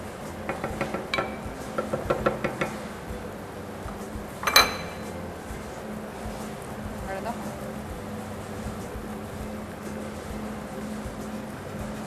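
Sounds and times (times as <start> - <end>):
steady low hum: 0.0 - 12.0
utensils tapping frying pans: 0.3 - 3.1, 3.8 - 5.2
metallic clank ringing: 0.5 - 2.9, 4.4 - 5.2.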